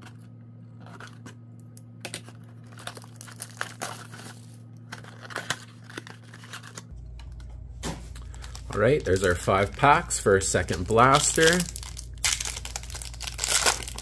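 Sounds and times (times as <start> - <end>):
scrapes and crinkles on card: 0.0 - 1.4, 2.3 - 6.9.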